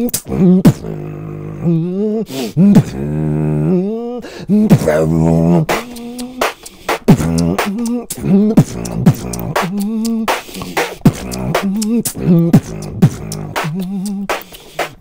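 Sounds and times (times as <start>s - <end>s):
beatboxing mouth snares and clicks: 0.0s - 1.1s, 2.3s - 3.0s, 4.6s - 15.0s
hummed bass line: 7.1s - 10.2s, 11.1s - 14.3s.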